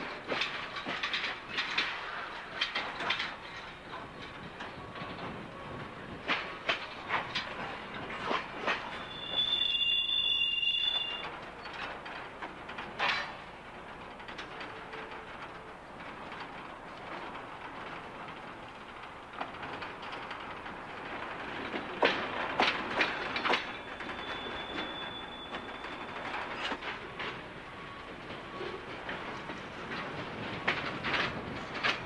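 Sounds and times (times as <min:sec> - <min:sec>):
steel wheels clanking over rail joints: 0:00.0 - 0:32.0
high wheel squeal: 0:09.0 - 0:11.3, 0:23.7 - 0:26.8.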